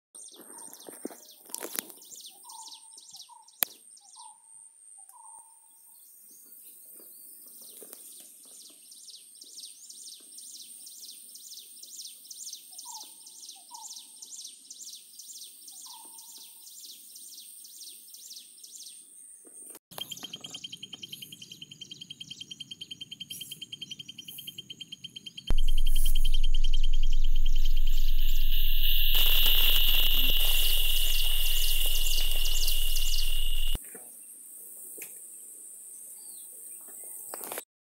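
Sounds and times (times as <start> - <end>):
insects chirping: 20.0 - 33.8
birds calling: 24.9 - 33.8
music with low drone: 25.5 - 33.8
pulsing high tone: 25.5 - 33.8
thin continuous high tone: 25.5 - 33.8.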